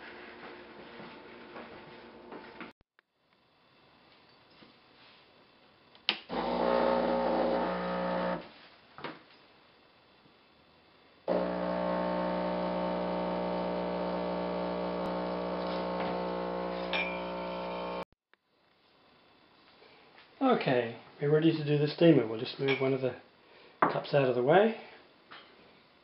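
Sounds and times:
espresso machine pump humming: 6.3 - 8.4, 11.3 - 18.0.

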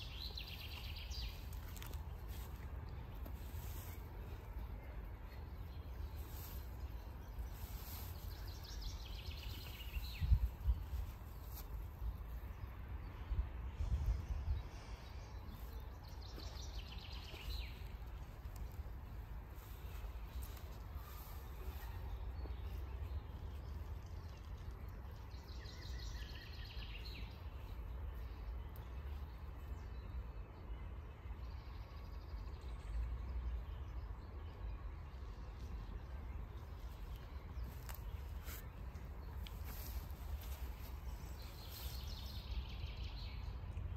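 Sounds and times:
wind rumbling on microphone: 6.2 - 21.9.

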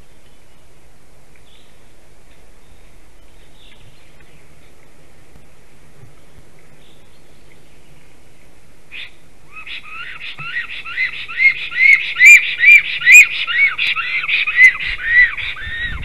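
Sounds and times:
bird whistling: 8.9 - 16.0.

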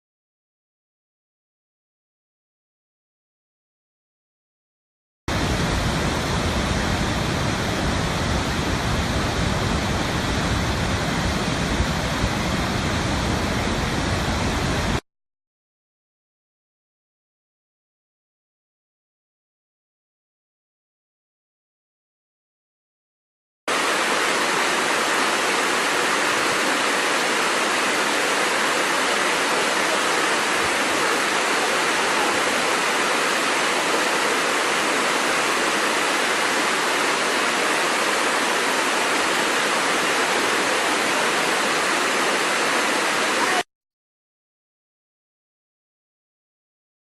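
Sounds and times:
waterfall splashing: 5.3 - 15.0, 23.7 - 43.7.

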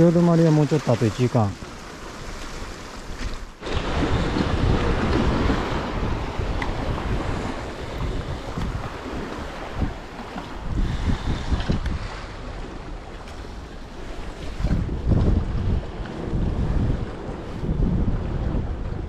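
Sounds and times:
sea waves washing on rocks: 0.0 - 17.6
wind buffeting microphone: 1.6 - 19.0.

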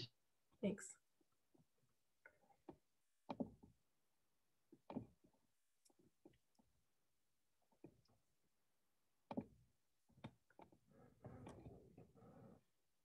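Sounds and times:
faint ticks and knocks: 2.6 - 3.8, 4.7 - 6.7, 9.2 - 12.6.

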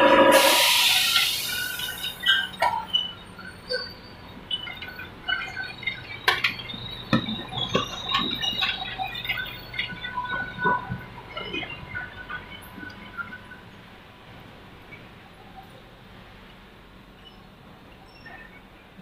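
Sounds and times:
machinery humming: 0.0 - 16.4
quick squeaks and clicks: 0.8 - 13.5, 17.2 - 18.7.

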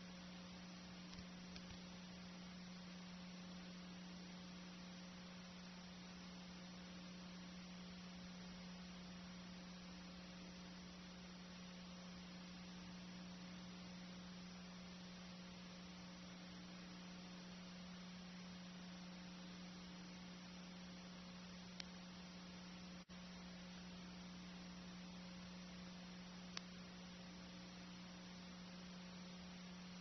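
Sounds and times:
faint hiss: 0.0 - 30.0
low electrical hum: 0.0 - 30.0
faint click: 1.1 - 2.0, 21.7 - 22.0, 26.5 - 26.8.

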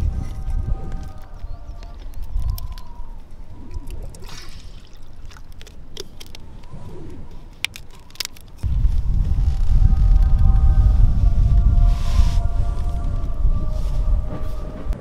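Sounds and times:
low rumble: 0.0 - 4.3, 8.6 - 15.0.

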